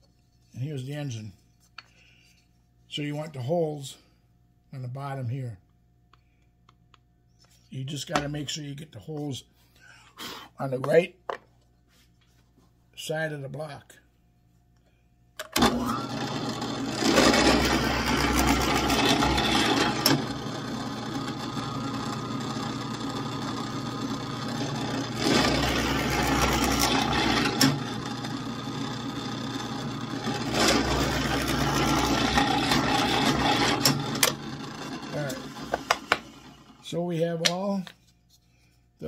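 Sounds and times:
electric drill boring into wood: 0:15.6 - 0:36.8.

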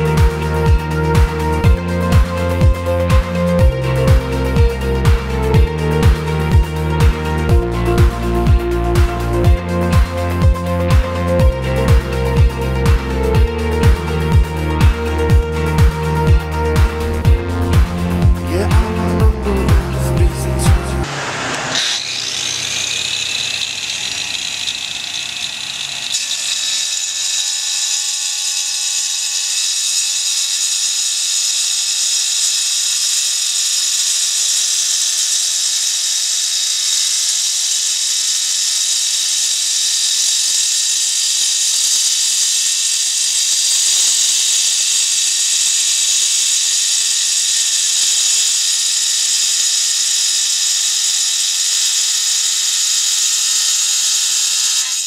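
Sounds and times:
angle grinder whining: 0:00.0 - 0:55.0
grinder cutting ceramic tile: 0:11.7 - 0:55.0.

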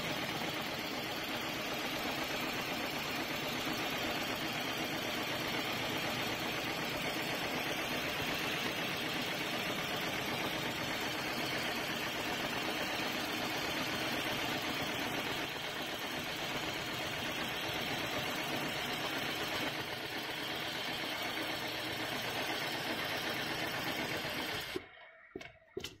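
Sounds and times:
sewing machine stitching: 0:00.0 - 0:26.0.

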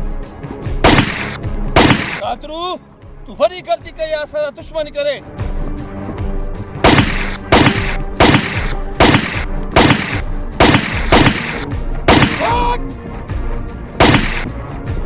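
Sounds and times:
background music: 0:00.0 - 0:15.0
gunshots: 0:00.8 - 0:02.2, 0:06.8 - 0:12.8, 0:14.0 - 0:14.5.

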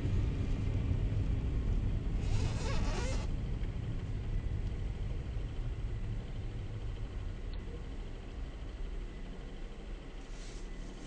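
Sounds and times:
tyres and engine rumbling: 0:00.0 - 0:11.0
brief hiss: 0:10.2 - 0:11.0.

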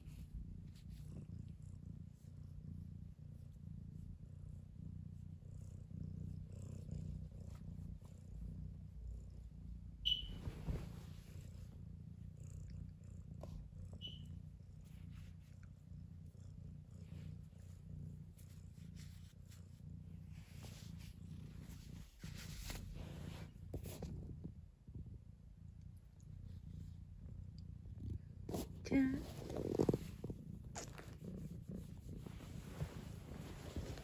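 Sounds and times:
cat purring: 0:00.0 - 0:34.0
short high blip: 0:10.1 - 0:10.4.

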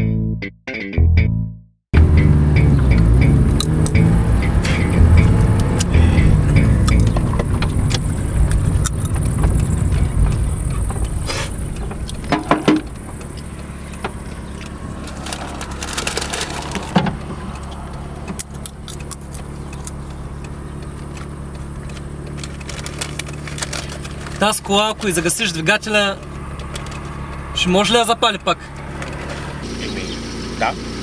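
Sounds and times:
car engine and road rumble: 0:02.0 - 0:31.0
car engine idling: 0:02.0 - 0:31.0
clicks and knocks inside car: 0:06.9 - 0:15.9, 0:16.5 - 0:18.4.

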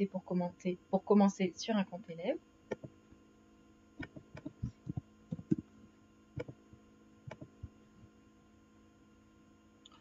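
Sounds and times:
steady hum: 0:00.0 - 0:10.0
keyboard and mouse clicks: 0:02.7 - 0:03.0, 0:04.0 - 0:05.7, 0:06.4 - 0:06.6, 0:07.3 - 0:07.7.

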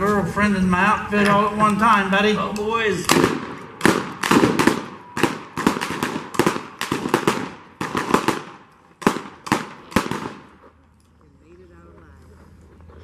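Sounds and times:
blank gunshots: 0:03.0 - 0:10.5.

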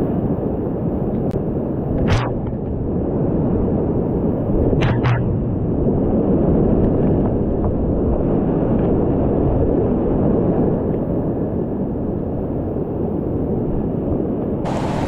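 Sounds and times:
whitewater rapids rushing: 0:14.6 - 0:15.0.

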